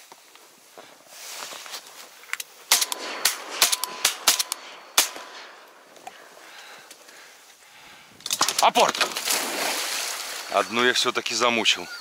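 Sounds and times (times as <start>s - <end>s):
shotgun shots: 2.7s - 6.0s.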